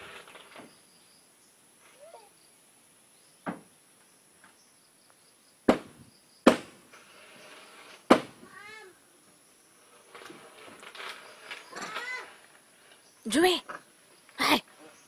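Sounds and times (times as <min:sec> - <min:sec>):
sharp knocks: 0:05.7 - 0:06.8, 0:08.1 - 0:08.4.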